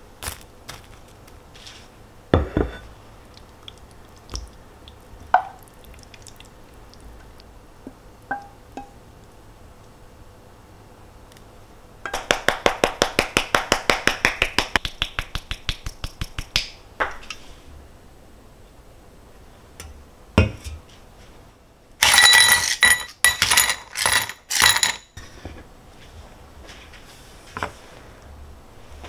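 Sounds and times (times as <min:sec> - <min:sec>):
ice cubes clinking into glass: 0:22.0 - 0:25.1.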